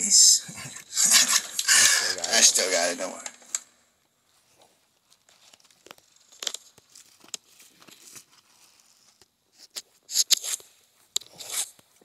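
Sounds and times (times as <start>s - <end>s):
rustling and crinkling: 4.2s - 12.0s.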